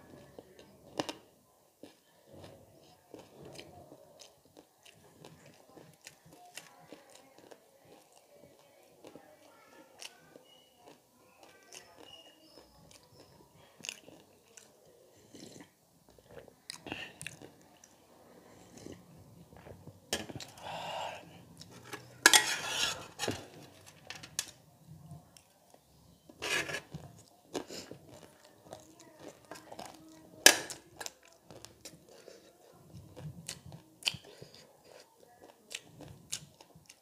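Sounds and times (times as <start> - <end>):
chewing and crunching: 0.1 - 20.6, 21.5 - 37.0
metal spoon clinking on dishes: 21.8 - 24.5.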